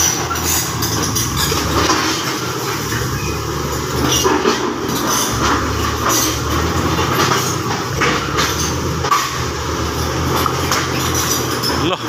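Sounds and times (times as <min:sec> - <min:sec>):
bulldozer diesel engine running: 0:00.0 - 0:12.0
steel tracks clanking: 0:00.0 - 0:12.0
wheel loader engine running: 0:00.0 - 0:12.0.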